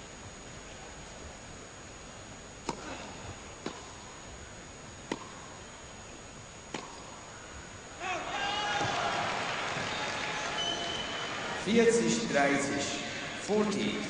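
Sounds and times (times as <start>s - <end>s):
steady background hiss: 0.0s - 14.0s
tennis ball off racket: 2.6s - 2.9s, 3.6s - 4.0s, 5.1s - 5.5s, 6.7s - 7.2s.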